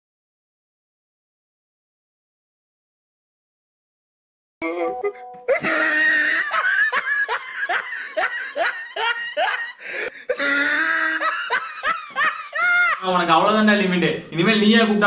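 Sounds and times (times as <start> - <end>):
music: 4.6 - 5.6
loud rhythmic laughter: 5.5 - 13.0.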